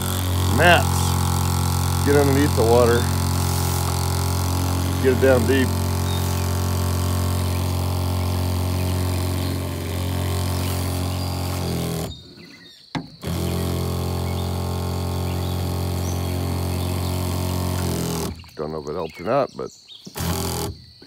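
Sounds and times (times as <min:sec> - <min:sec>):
water spray blasting: 0:00.0 - 0:12.1
pressure washer engine running: 0:00.0 - 0:12.3, 0:13.2 - 0:18.5, 0:20.2 - 0:20.8.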